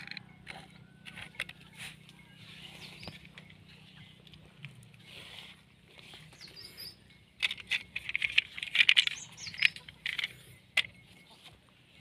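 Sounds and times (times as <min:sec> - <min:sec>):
faint bird chirps: 0:02.2 - 0:04.4, 0:05.0 - 0:07.3
small hard objects clattering: 0:07.4 - 0:11.0.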